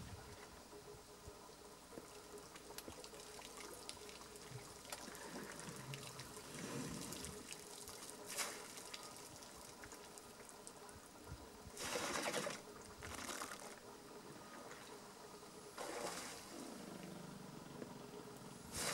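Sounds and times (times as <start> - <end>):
water trickling and dripping: 1.5 - 11.7.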